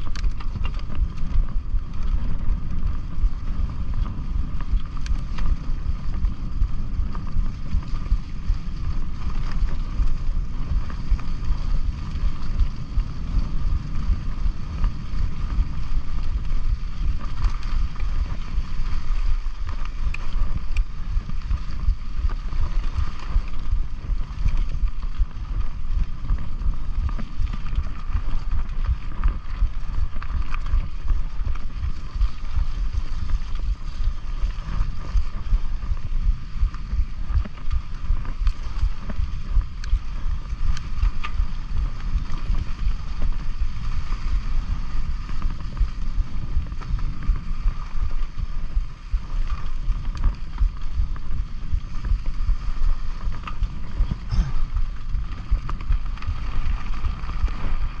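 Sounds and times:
bike rattling on dirt trail: 0:00.0 - 0:58.0
wind buffeting the microphone: 0:00.0 - 0:58.0.

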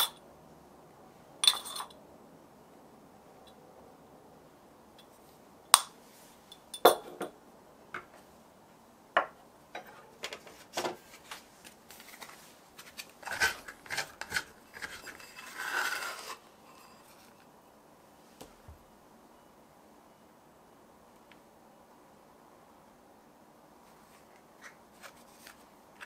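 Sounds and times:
glass bowl knocks and clinks: 0:06.8 - 0:07.3
scraping rub: 0:12.1 - 0:17.3.

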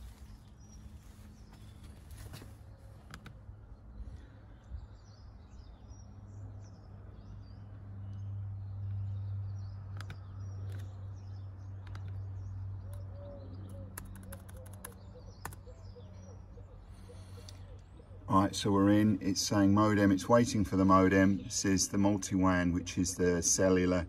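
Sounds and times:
small birds chirping: 0:00.0 - 0:24.0
quick clicks: 0:14.0 - 0:15.6.

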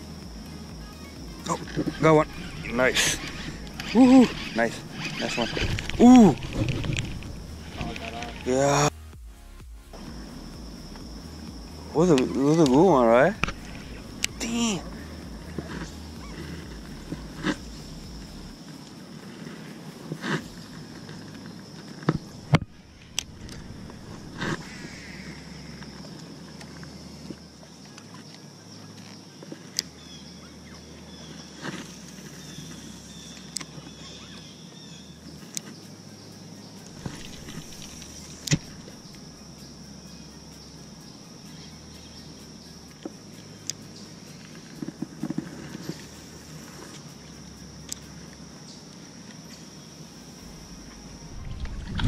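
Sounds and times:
high-pitched drone: 0:00.0 - 0:26.1, 0:50.0 - 0:52.0.

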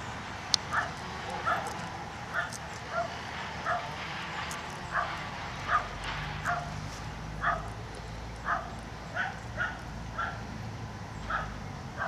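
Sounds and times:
dog barking: 0:00.7 - 0:04.0, 0:04.9 - 0:06.8, 0:07.4 - 0:07.8, 0:08.4 - 0:10.4, 0:11.3 - 0:12.0.

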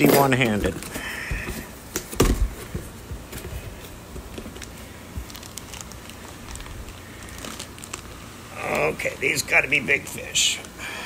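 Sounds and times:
plastic bags crinkling: 0:00.0 - 0:10.8.

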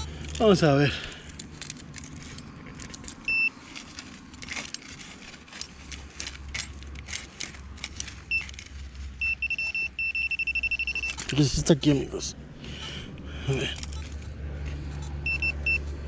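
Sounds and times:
digging in stony soil: 0:00.0 - 0:12.8
pinpointer high beeps: 0:03.3 - 0:03.5, 0:09.2 - 0:11.3, 0:15.0 - 0:15.9.

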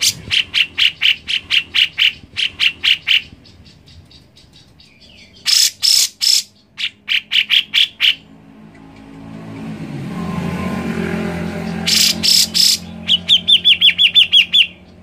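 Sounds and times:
bulbul calling sharp notes: 0:10.1 - 0:14.9.

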